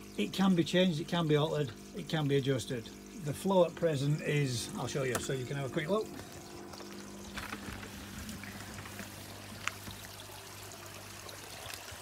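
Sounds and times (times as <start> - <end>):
low steady hum: 0.0 - 11.9
water splashing into pond: 6.0 - 12.0.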